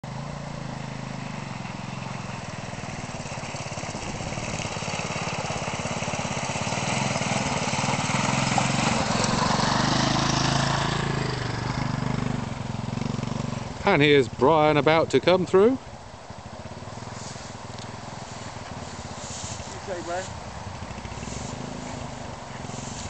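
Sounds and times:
motorcycle engine running: 0.0 - 23.0
splashing through water: 2.9 - 11.7.

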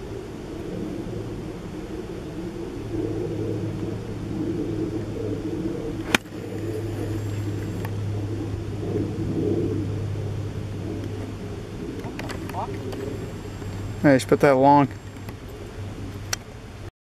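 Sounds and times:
steady low rumble: 0.0 - 16.9
golf club striking ball: 6.0 - 6.8.

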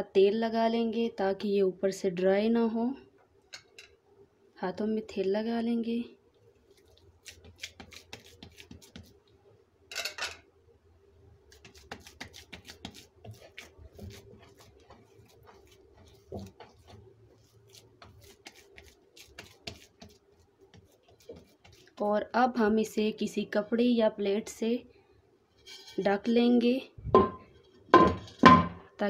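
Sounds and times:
hand rubbing dough: 6.5 - 9.3, 11.4 - 23.0
hands patting dough: 6.7 - 9.2, 11.5 - 22.2.

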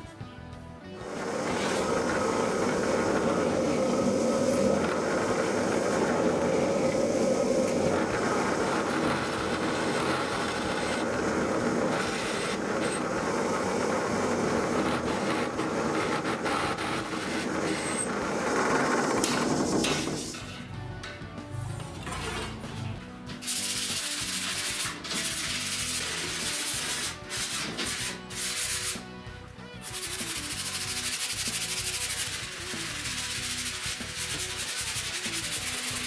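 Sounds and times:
drill press drilling metal strip: 1.0 - 20.6.

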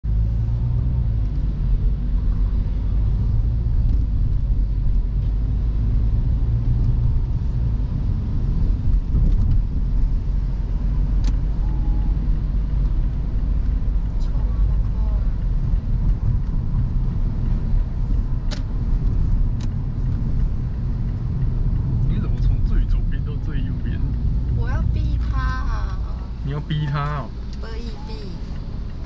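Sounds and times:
car engine and road rumble: 0.0 - 29.0
sharp click: 18.5 - 18.7.

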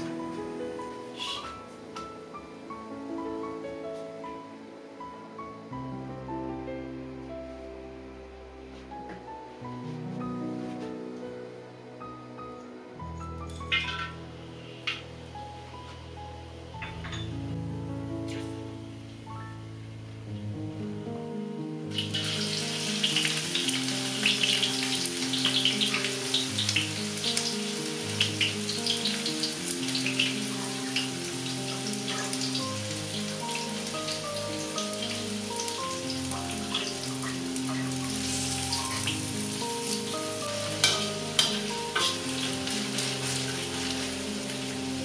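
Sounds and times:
background music: 0.0 - 45.0
onions sizzling in hot oil: 1.0 - 1.7, 21.9 - 45.0.

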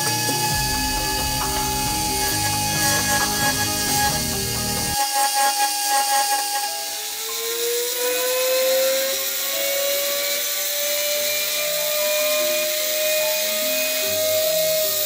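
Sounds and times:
burr cutting metal hiss: 0.0 - 5.0
rotary tool motor whine: 0.0 - 15.0.

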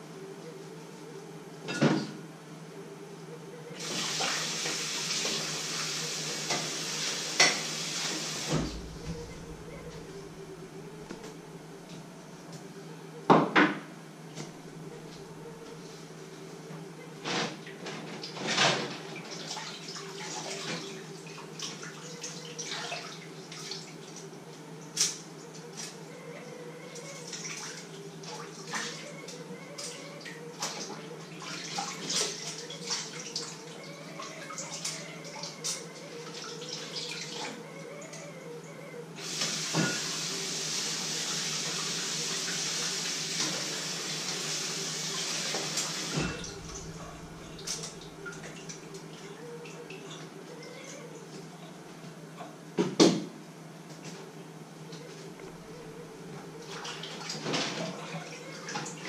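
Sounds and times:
steady low hum: 0.0 - 3.8, 8.4 - 18.4, 19.1 - 39.2, 46.1 - 58.7.

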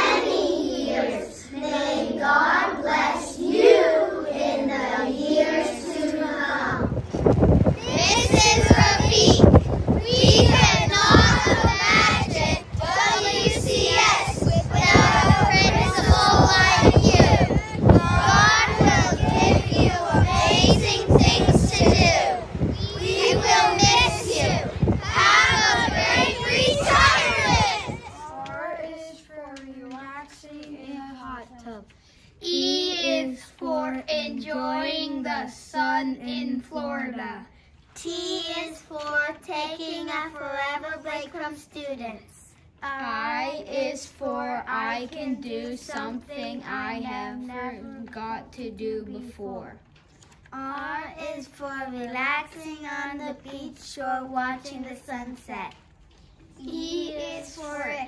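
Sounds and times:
children singing: 0.0 - 6.9, 7.8 - 28.3
wind rumbling on microphone: 2.9 - 28.7.

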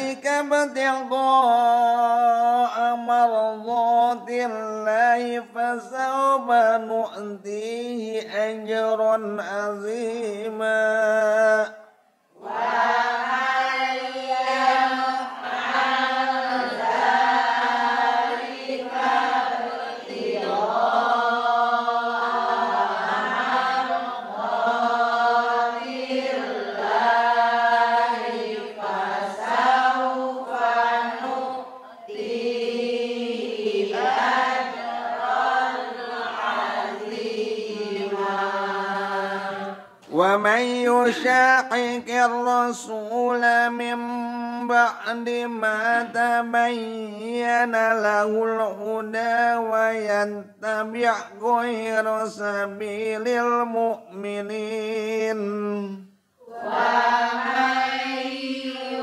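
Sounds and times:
man chanting melodically: 0.0 - 11.9, 40.0 - 56.1.

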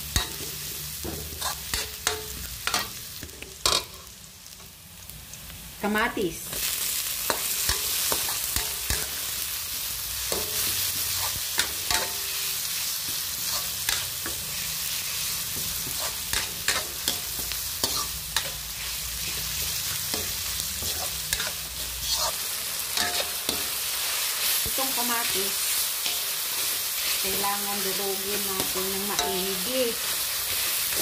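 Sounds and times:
tomatoes sizzling in hot oil: 0.0 - 31.0
metal spatula scraping a pan: 0.2 - 3.0, 13.1 - 22.4.

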